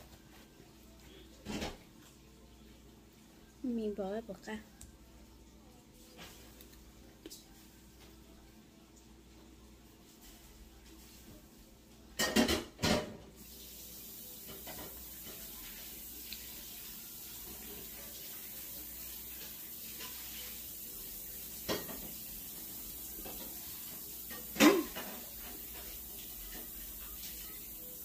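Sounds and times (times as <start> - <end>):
dishes clattering: 12.2 - 13.3, 21.6 - 22.2, 24.3 - 26.7
tap running water: 12.2 - 28.0.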